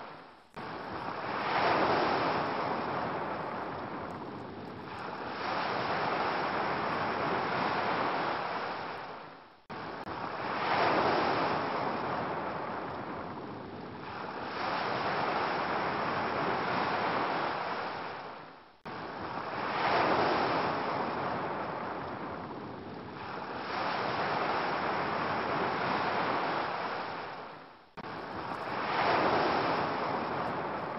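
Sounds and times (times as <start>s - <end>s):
ocean waves washing ashore: 0.0s - 30.9s.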